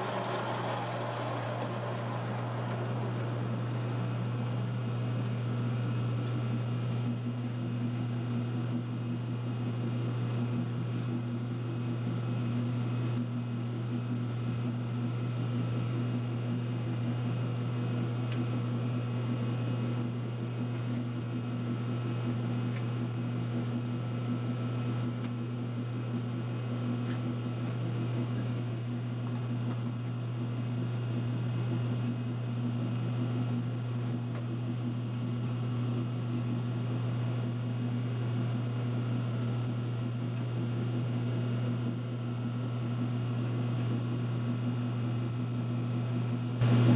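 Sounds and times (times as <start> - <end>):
low machine hum: 0.0 - 11.3.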